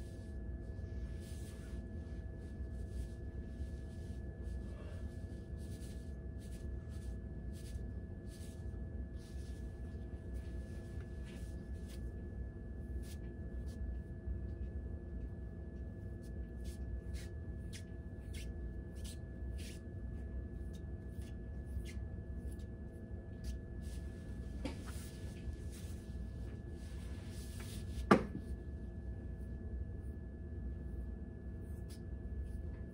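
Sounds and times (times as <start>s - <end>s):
steady background hum: 0.0s - 32.9s
soft scratchy rustles of hair: 1.1s - 13.9s, 23.4s - 28.1s.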